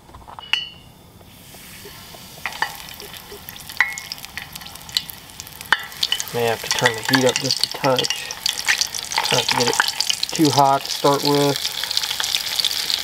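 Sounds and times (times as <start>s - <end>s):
metallic clink: 0.4s - 1.0s, 3.8s - 4.2s
oil sizzling and popping: 0.5s - 13.0s.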